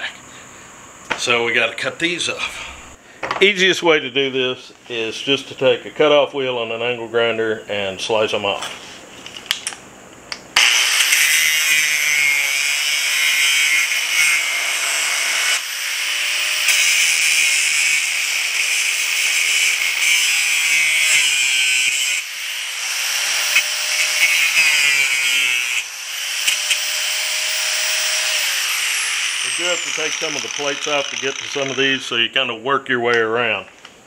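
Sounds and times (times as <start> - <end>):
angle grinder cutting steel bolts: 10.6 - 32.1.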